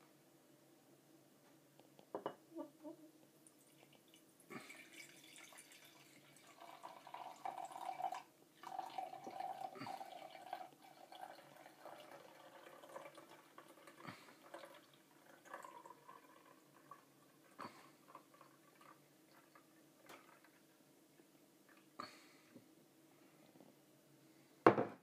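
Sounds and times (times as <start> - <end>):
liquid trickling into a glass jar: 3.4 - 20.7.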